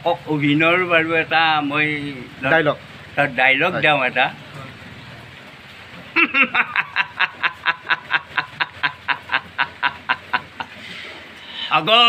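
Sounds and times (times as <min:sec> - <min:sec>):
man laughing: 0:06.2 - 0:10.8.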